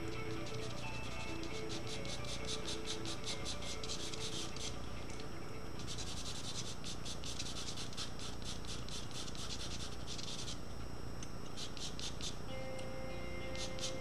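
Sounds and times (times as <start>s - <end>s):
charcoal pencil scratching paper: 0.3s - 4.8s, 5.8s - 10.6s, 11.5s - 12.4s, 13.5s - 14.0s.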